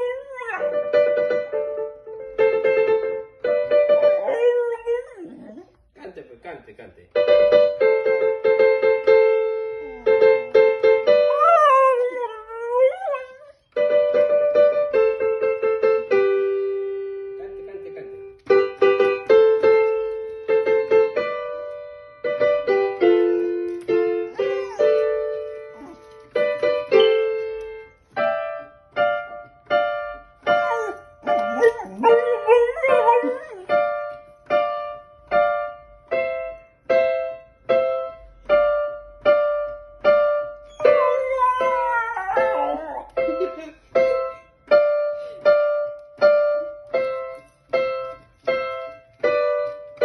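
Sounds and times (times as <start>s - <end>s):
dog howling: 4.2s - 5.7s, 11.3s - 13.5s, 30.7s - 33.7s, 40.7s - 43.1s
electric keyboard playing: 7.2s - 50.0s.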